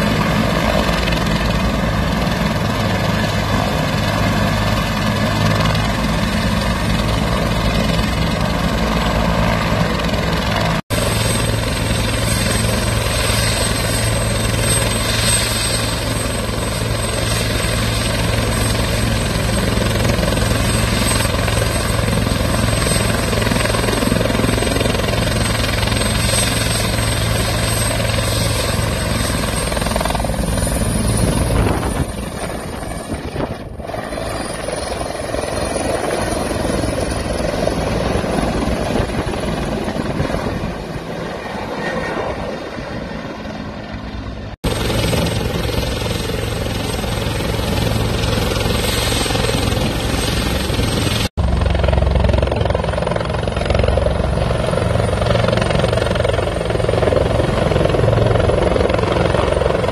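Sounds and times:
helicopter rotor blade beat: 0.0s - 59.9s
helicopter turbine whine: 0.0s - 59.9s.

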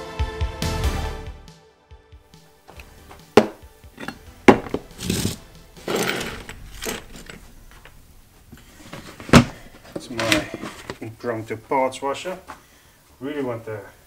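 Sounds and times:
scraping on workbench: 2.7s - 11.0s
metal tools knocking and clinking: 3.4s - 8.0s.

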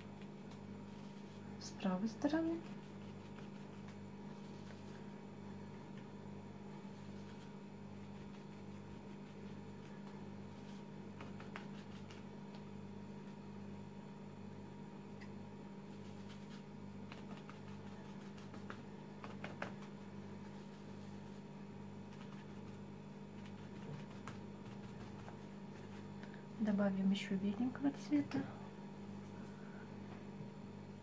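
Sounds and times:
paper napkin dabbing on paper: 0.3s - 5.2s, 6.8s - 12.7s, 15.9s - 26.2s.

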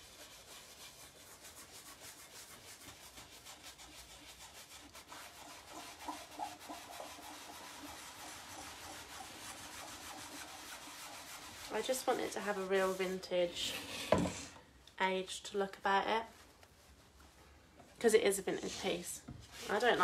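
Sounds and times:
rag rubbing on wood: 0.0s - 14.4s.

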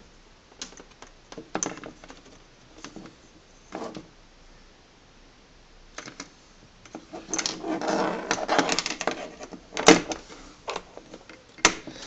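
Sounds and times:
plastic clicks and rustling: 0.6s - 3.2s, 8.2s - 12.0s.

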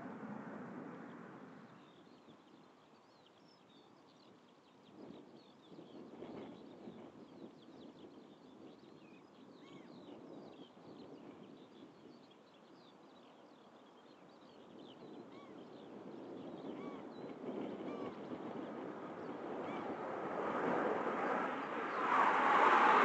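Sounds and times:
distant jet rumble: 0.0s - 1.9s, 17.3s - 23.0s.

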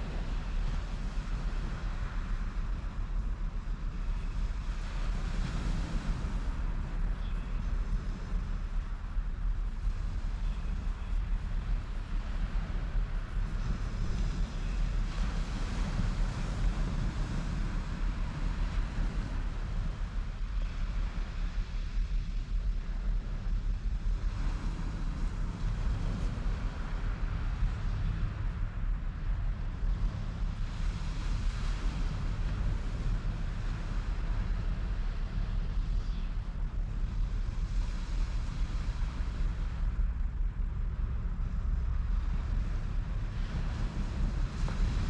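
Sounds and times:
wind buffeting microphone: 0.0s - 45.0s
waves breaking on shore: 23.8s - 45.0s.

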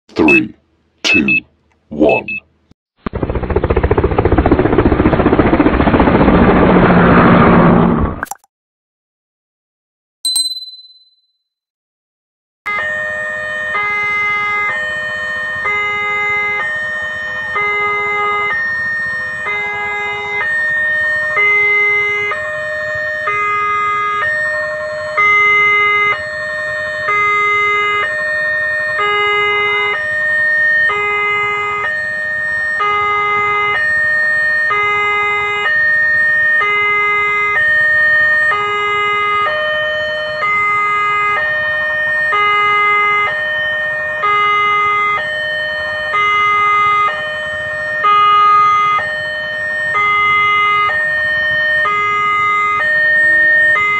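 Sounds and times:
two-tone level crossing alarm: 0.2s - 1.4s, 12.7s - 53.9s.

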